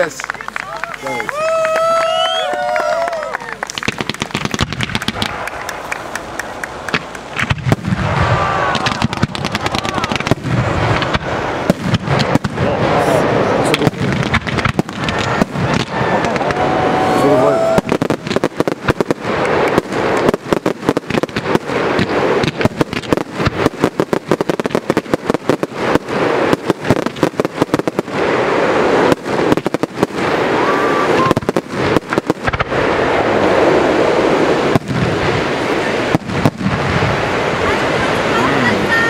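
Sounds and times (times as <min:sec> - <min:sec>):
fireworks bangs: 0:00.0 - 0:39.0
fireworks crackling hiss: 0:00.0 - 0:39.0.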